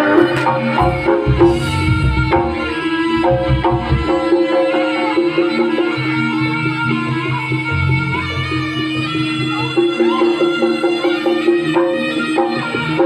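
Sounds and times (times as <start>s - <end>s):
hand drum patterns: 0.0s - 4.9s, 7.7s - 10.2s
ensemble music over pa system: 0.0s - 5.1s, 7.7s - 10.1s
ringing pitched instruments: 0.0s - 12.4s.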